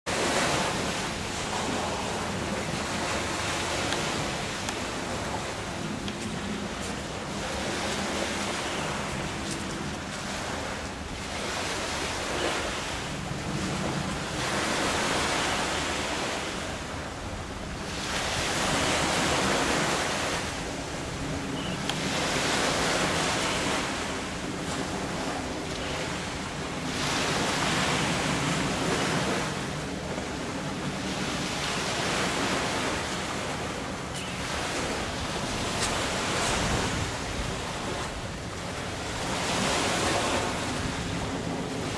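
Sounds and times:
sea surf breaking on beach: 0:00.1 - 0:41.9.

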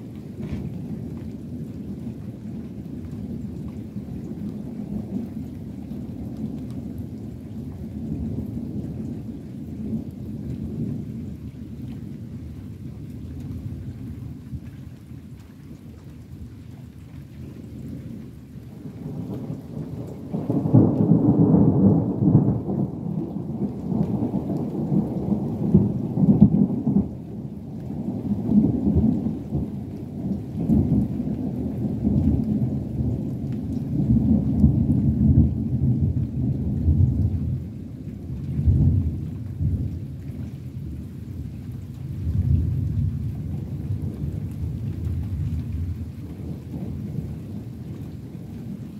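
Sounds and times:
thunder rumbling: 0:18.8 - 0:48.9.

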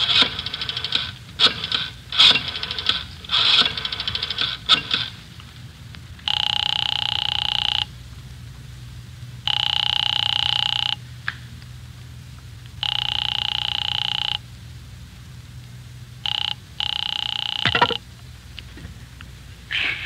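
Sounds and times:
rotary dial whirring: 0:00.0 - 0:08.2, 0:09.2 - 0:11.1, 0:12.5 - 0:14.6, 0:15.6 - 0:19.3
telephone ringing: 0:06.2 - 0:08.0, 0:09.4 - 0:11.0, 0:12.8 - 0:14.5, 0:16.2 - 0:18.0.

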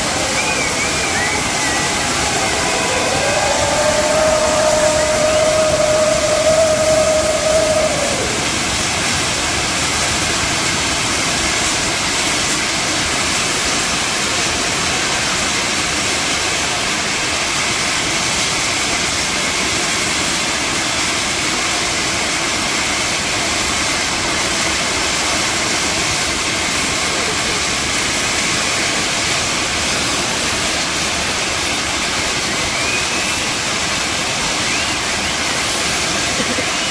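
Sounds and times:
high whistling tone: 0:00.0 - 0:09.0, 0:32.6 - 0:33.6, 0:34.6 - 0:35.6
fireworks fountain hissing: 0:00.0 - 0:36.9.

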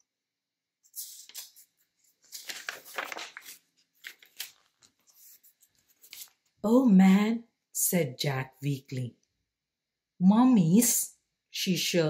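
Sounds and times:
book pages rustling: 0:00.8 - 0:06.6.

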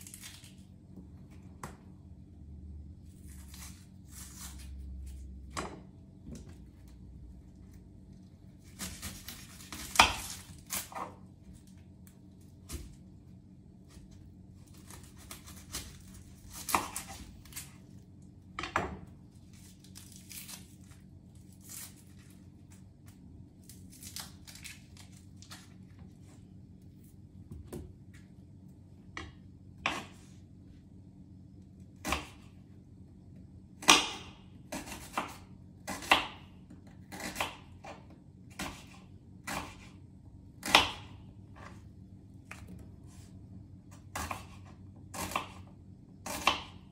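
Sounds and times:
onion skin tearing: 0:00.0 - 0:00.7, 0:03.2 - 0:05.3, 0:08.6 - 0:11.1, 0:14.6 - 0:18.0, 0:19.4 - 0:25.8
faint low hum: 0:00.0 - 0:46.9.

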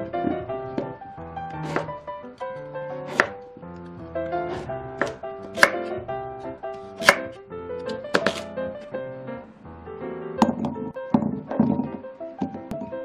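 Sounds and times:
knife chopping on wooden board: 0:01.6 - 0:02.0, 0:03.1 - 0:03.4, 0:04.5 - 0:05.9, 0:07.0 - 0:08.5.

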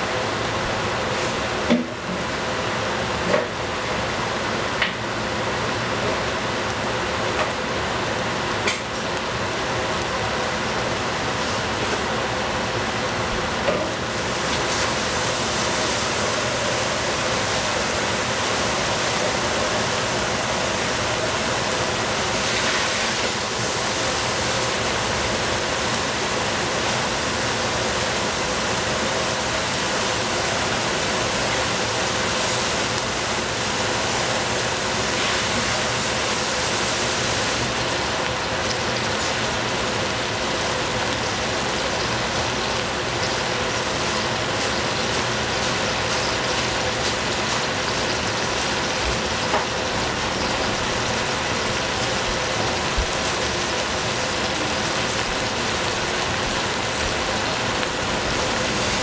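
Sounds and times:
food hissing in a pan: 0:14.0 - 0:59.0.

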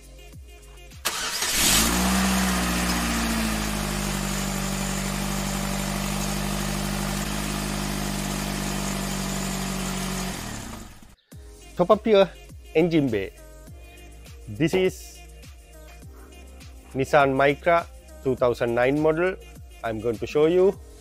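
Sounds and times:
car engine starting and idling: 0:01.0 - 0:11.2.

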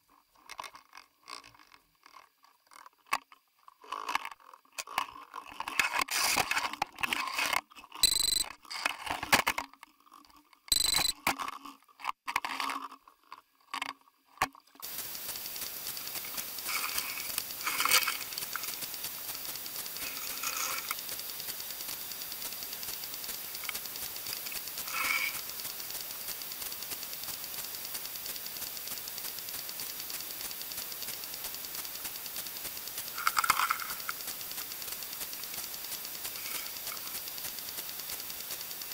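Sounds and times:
steady hiss: 0:14.8 - 0:38.9.

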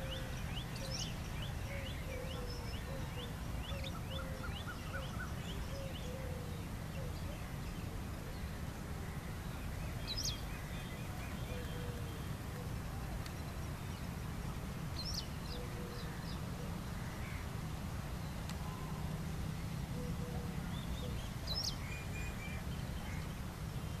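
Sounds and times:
low outdoor rumble: 0:00.0 - 0:24.0.

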